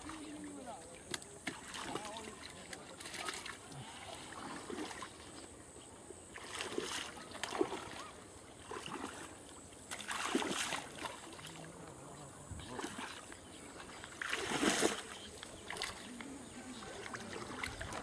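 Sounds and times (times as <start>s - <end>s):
water splashing and sloshing: 0.0s - 18.0s.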